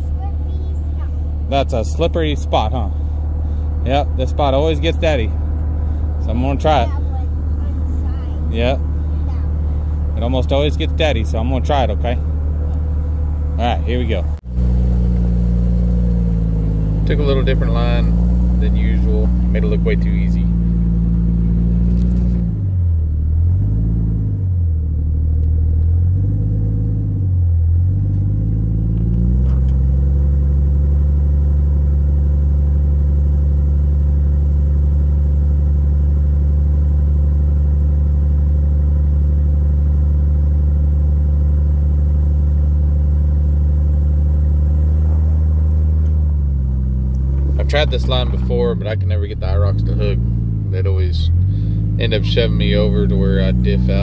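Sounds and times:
engine revving: 0.0s - 54.0s.

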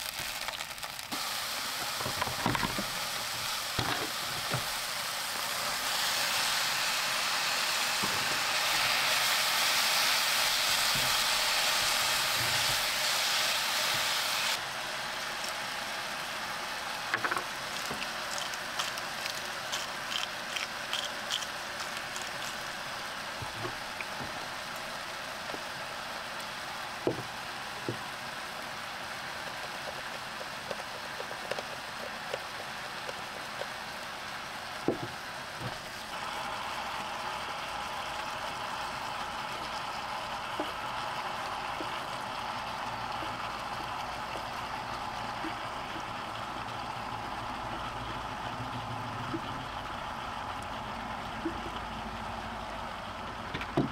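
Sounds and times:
meat sizzling in a frying pan: 0.0s - 34.6s
seasoning shaker rattling: 17.2s - 22.9s.

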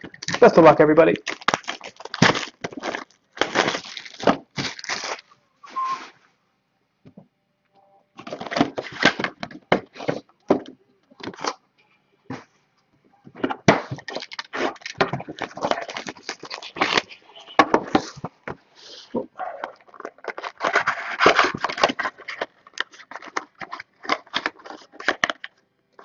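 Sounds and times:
plastic wrapper crinkling and tearing: 0.0s - 5.3s, 8.2s - 9.6s, 13.9s - 17.2s, 19.6s - 26.0s.

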